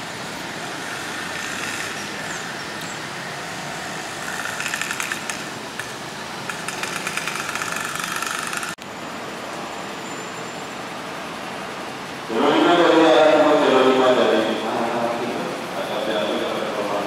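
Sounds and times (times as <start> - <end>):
engine idling with rattle: 0.0 - 8.8.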